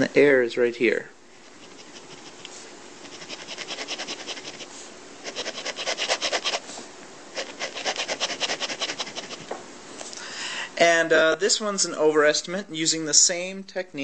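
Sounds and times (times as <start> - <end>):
pen scratching on paper: 1.4 - 9.5.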